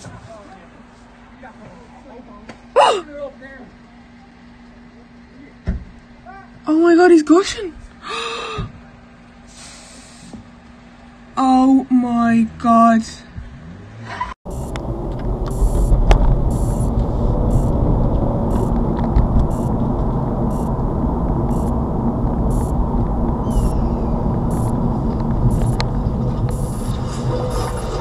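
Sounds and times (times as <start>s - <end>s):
car road and engine rumble: 8.6s - 28.0s.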